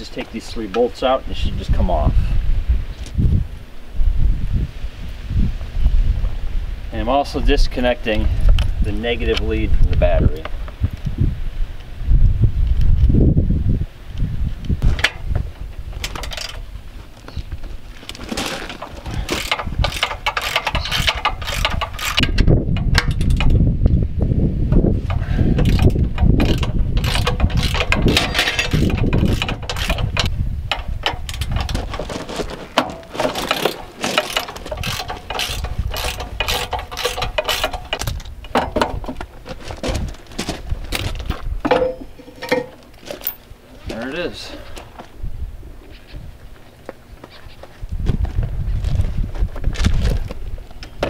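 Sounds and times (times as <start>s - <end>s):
metal parts clanking: 14.8s - 16.7s, 18.0s - 23.6s, 25.1s - 44.2s
ratchet wrench clicking: 19.3s - 23.6s, 25.1s - 31.8s, 33.4s - 38.6s.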